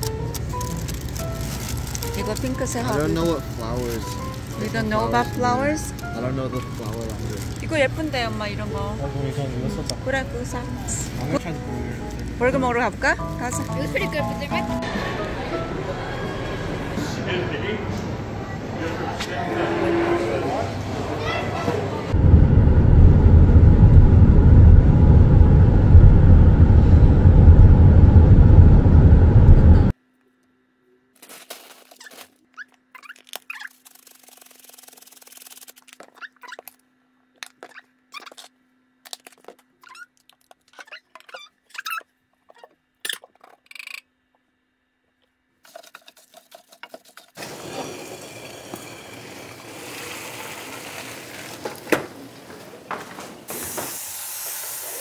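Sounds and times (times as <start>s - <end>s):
loud dense low noise: 21.9s - 29.9s.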